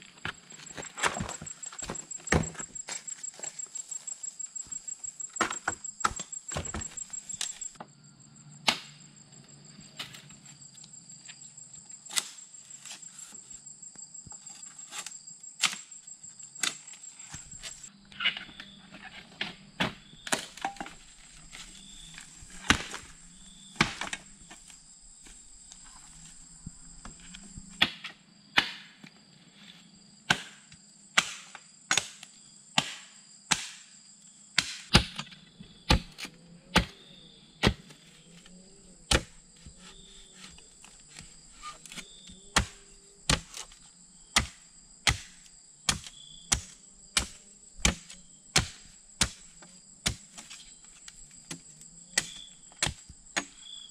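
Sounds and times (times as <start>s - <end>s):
insects droning: 0.0s - 53.9s
machete chopping bamboo: 8.7s - 9.0s, 12.1s - 12.4s, 22.5s - 23.1s, 23.8s - 24.4s, 27.6s - 29.0s, 30.3s - 34.0s, 34.6s - 36.9s, 37.6s - 38.0s, 39.1s - 43.8s, 44.4s - 53.7s.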